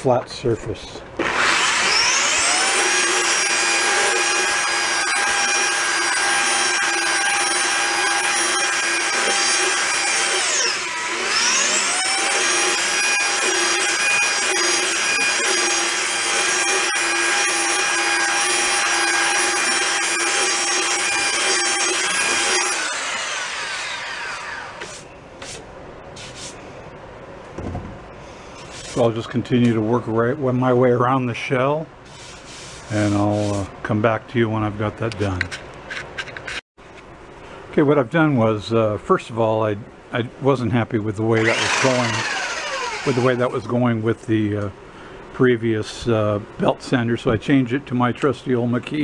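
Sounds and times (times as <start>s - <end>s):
belt sander on wood: 1.2s - 25.0s, 41.4s - 43.6s.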